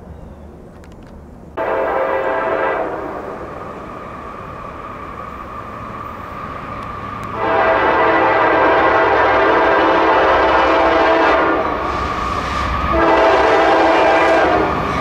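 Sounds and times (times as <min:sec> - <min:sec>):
locomotive air horn chord: 0:01.6 - 0:03.5, 0:07.3 - 0:12.2, 0:12.9 - 0:14.8.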